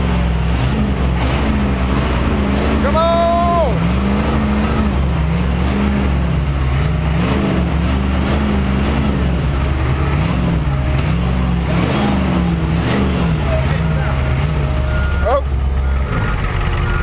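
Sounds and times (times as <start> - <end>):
diesel engines running hard: 0.0 - 17.0.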